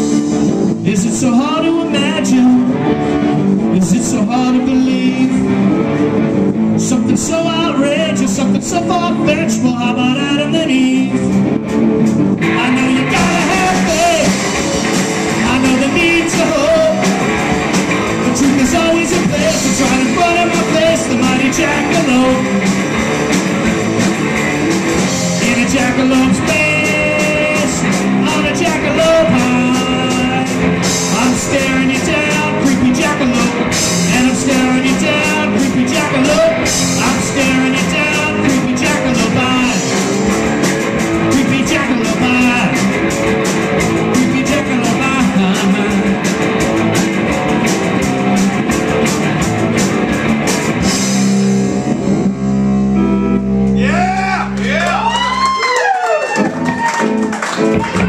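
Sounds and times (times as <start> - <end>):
man singing: 0.0 - 5.9, 6.7 - 11.4, 12.4 - 22.7, 25.2 - 40.2, 41.1 - 43.1, 43.8 - 46.6
drum kit with cymbal hits: 0.0 - 58.0
electric bass: 0.0 - 58.0
electric guitar: 0.0 - 58.0.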